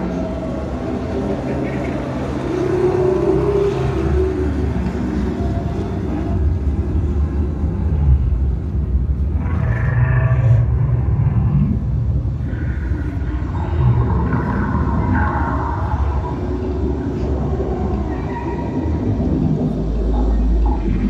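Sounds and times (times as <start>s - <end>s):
sea creatures calling: 12.3s - 21.0s.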